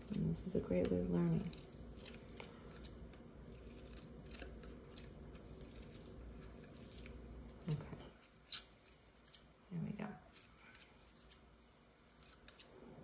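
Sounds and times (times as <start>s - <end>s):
scissors cutting paper: 0.0s - 7.8s, 12.2s - 12.7s.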